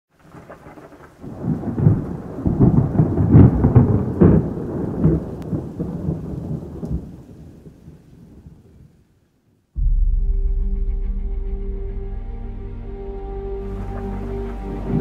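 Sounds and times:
low rolling rumble with crackles: 0:00.1 - 0:09.0, 0:13.6 - 0:15.0.

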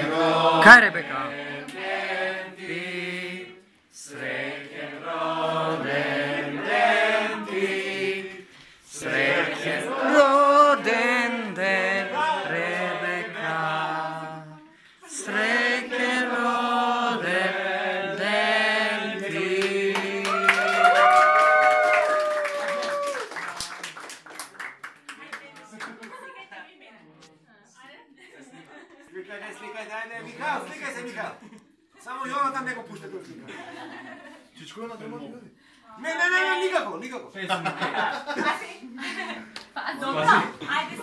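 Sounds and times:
group of people singing: 0:00.0 - 0:20.6.

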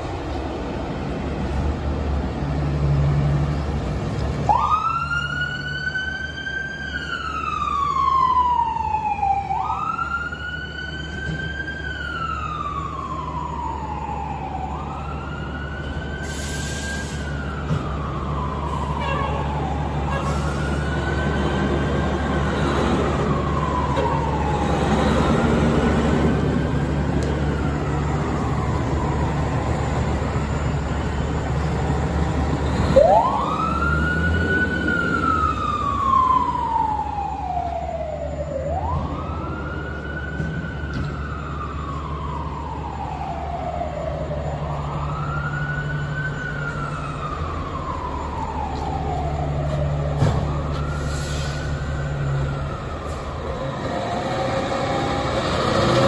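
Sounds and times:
truck engines low rumble: 0:00.0 - 0:56.0
fire truck siren wailing: 0:01.4 - 0:56.0.

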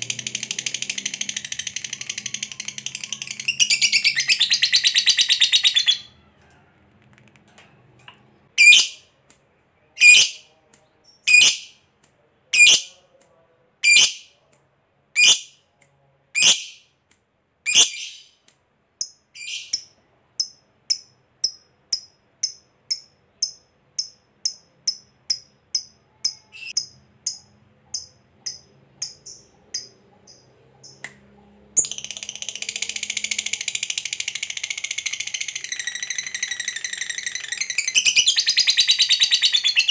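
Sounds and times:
soft bird chirps: 0:17.7 - 0:39.9.

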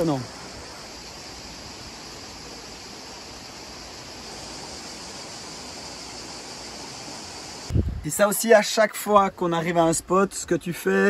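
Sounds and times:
high-pitched insect buzz: 0:00.0 - 0:07.7.

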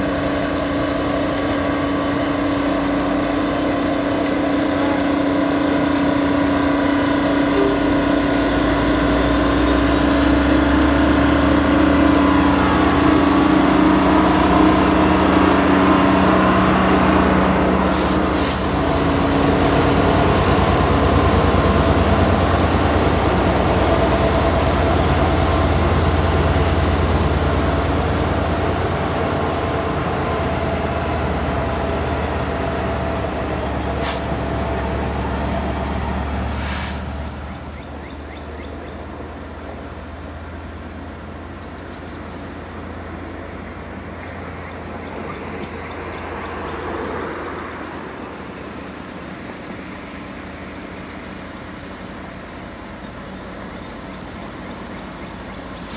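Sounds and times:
diesel locomotive engine drone: 0:00.0 - 0:55.9
sharp hisses or knocks: 0:17.8 - 0:18.8, 0:36.5 - 0:37.1.

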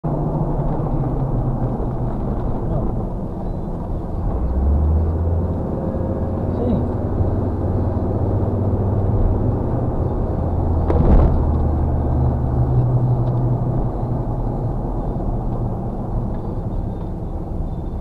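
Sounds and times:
car road and engine rumble: 0:00.0 - 0:18.0
thump: 0:10.8 - 0:11.8.

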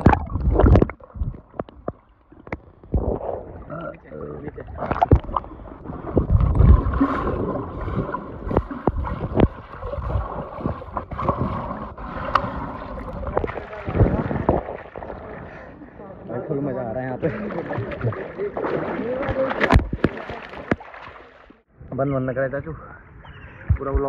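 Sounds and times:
underwater gurgling and bubbling: 0:00.0 - 0:15.6.

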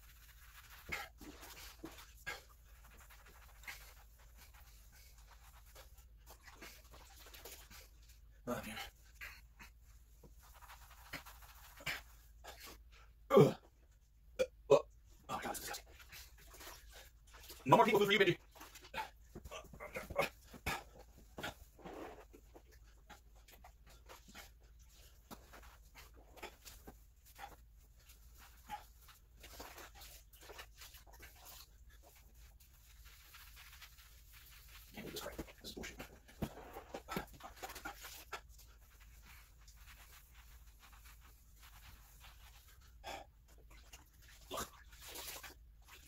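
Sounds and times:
wet sponge scrubbing a floor: 0:00.0 - 0:12.9, 0:15.3 - 0:46.0.

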